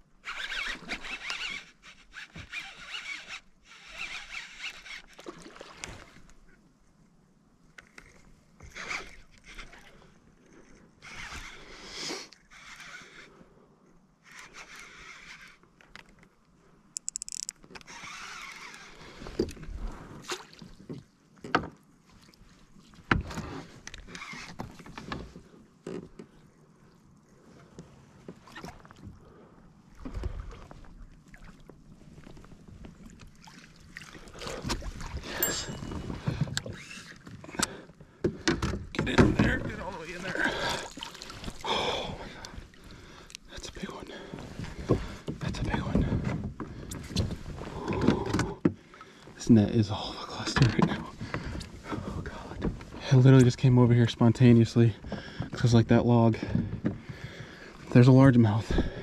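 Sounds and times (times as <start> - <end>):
water splashing: 33.0 - 36.0, 39.4 - 43.2.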